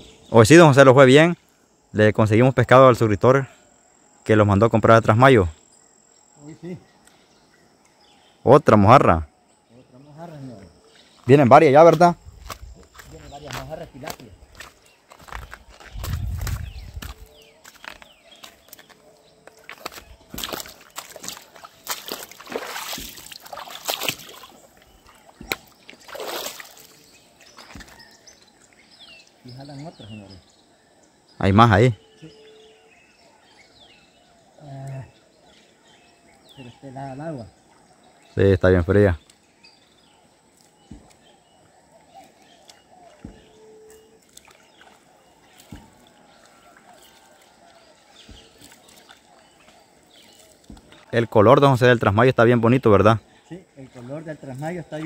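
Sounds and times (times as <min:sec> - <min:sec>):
water splashing and sloshing: 0:12.0 - 0:28.7, 0:44.2 - 0:51.1
soft low thumps: 0:14.4 - 0:17.4.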